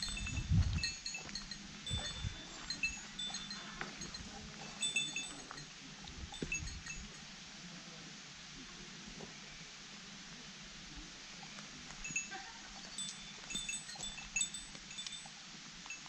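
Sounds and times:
wind on microphone: 0.0s - 5.2s, 6.0s - 7.1s.

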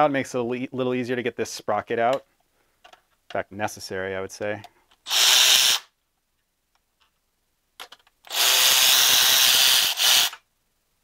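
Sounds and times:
cordless power tool driving fastener: 5.1s - 5.9s, 8.3s - 10.4s.

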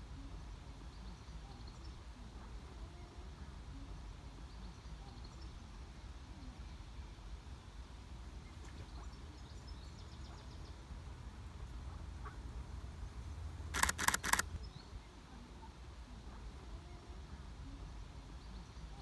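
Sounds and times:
faint low outdoor rumble: 0.0s - 19.0s
faint bird chirps: 0.1s - 7.7s
camera shutter firing: 13.8s - 14.6s.

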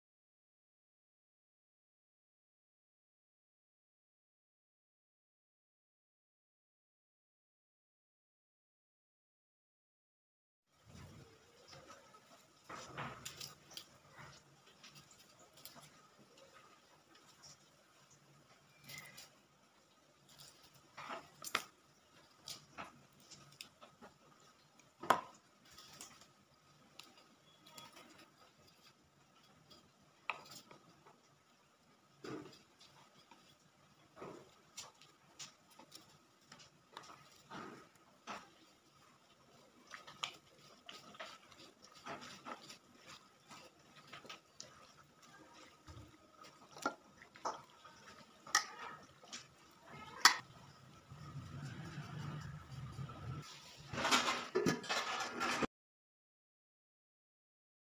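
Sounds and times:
hand mixing wet meat: 11.2s - 53.8s.

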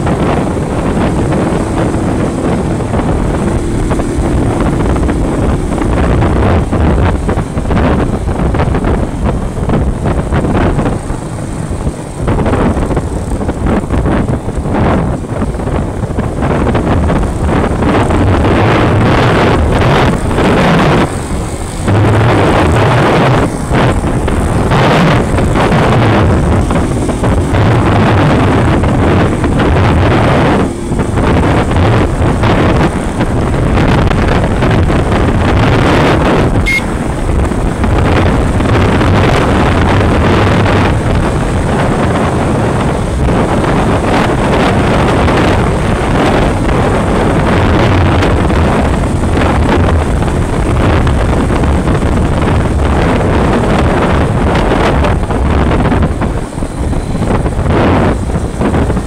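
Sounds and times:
motorcycle engine running: 0.0s - 59.0s
wind buffeting microphone: 0.0s - 59.0s.

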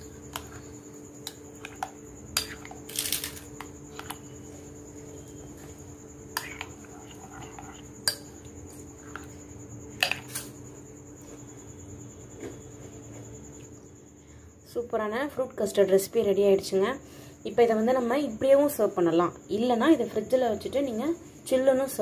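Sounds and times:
spoon scraping and squishing custard: 0.0s - 4.6s, 5.2s - 10.5s.

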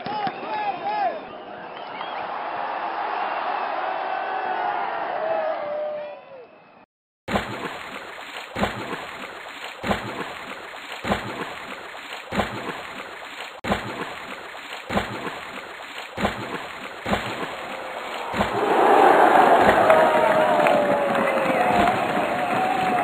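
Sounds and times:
steady wash of water: 7.3s - 23.0s
swimming stroke splashes: 7.3s - 23.0s.

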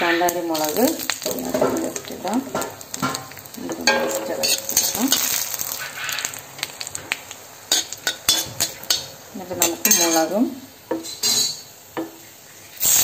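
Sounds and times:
chillies sizzling in hot oil: 0.0s - 13.0s
sharp crackles: 0.3s - 9.0s.

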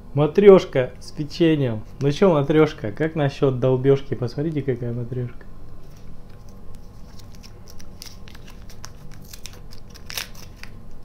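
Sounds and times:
candy wrapper crinkling: 6.3s - 11.0s.

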